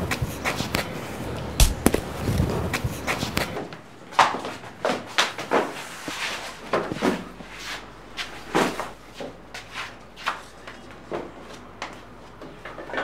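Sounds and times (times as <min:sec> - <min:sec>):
scuffling knocks and bumps: 0:01.6 - 0:03.5.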